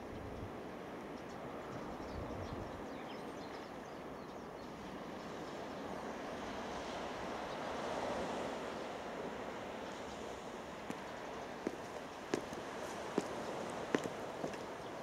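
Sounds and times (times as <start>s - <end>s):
small waves washing onto beach: 4.9s - 15.0s.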